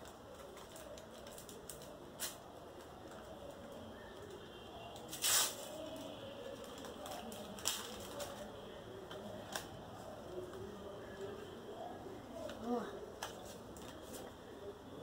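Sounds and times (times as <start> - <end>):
stickers crinkling: 0.0 - 11.4
soft paper rustling: 0.0 - 14.7
paper packet ripping: 5.0 - 8.5.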